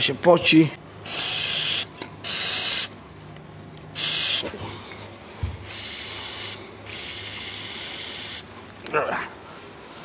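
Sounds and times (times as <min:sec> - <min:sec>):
aerosol spray hissing: 0:01.1 - 0:02.9, 0:04.0 - 0:04.5, 0:05.6 - 0:08.4.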